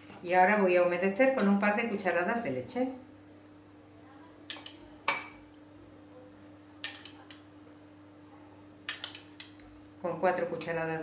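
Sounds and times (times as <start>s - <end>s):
faint steady hum: 0.0s - 11.0s
metal spoon clinking glass bowls: 4.5s - 5.4s, 6.8s - 7.5s, 8.9s - 9.6s.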